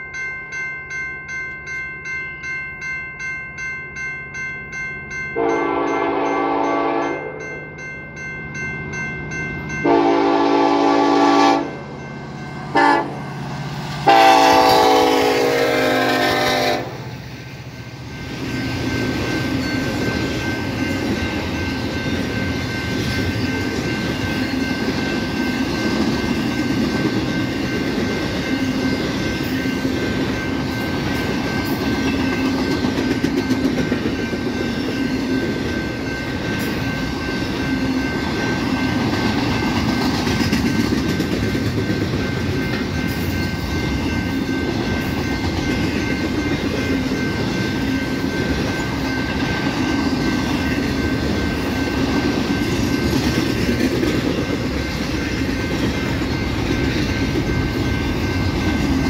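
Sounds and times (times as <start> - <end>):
train rumbling past: 4.0 - 59.0
locomotive air horn blasts: 5.4 - 7.3, 9.8 - 11.8, 12.7 - 13.2, 14.0 - 17.0.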